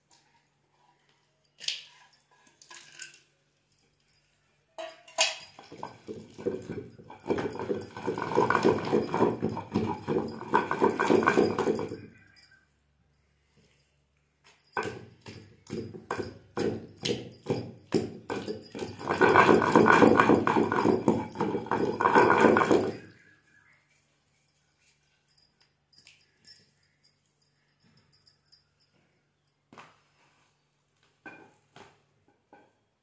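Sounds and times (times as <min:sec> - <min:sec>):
pestle pounding in stone mortar: 0:05.4 - 0:12.4, 0:14.7 - 0:23.1.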